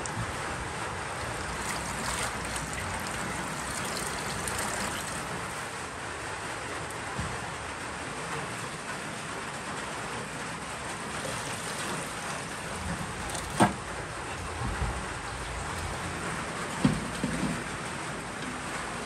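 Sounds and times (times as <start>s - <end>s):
tap water splashing into metal bowl: 1.2s - 5.7s, 11.2s - 13.8s.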